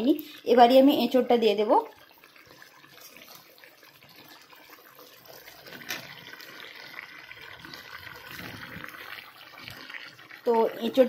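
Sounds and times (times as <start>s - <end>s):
meat sizzling in a pan: 0.0s - 11.0s
food knocking into pan: 5.6s - 6.3s.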